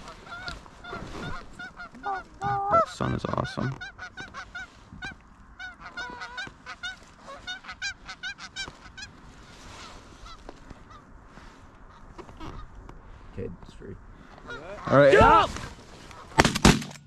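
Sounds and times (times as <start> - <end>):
geese honking: 0.0 - 11.1, 14.2 - 15.5.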